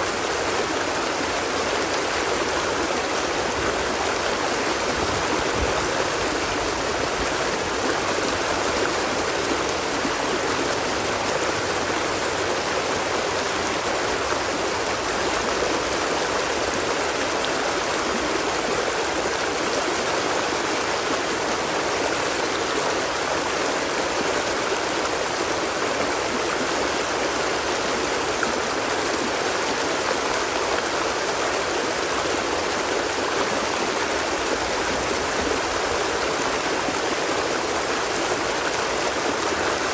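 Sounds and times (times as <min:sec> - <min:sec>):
stream water flowing: 0:00.0 - 0:39.9.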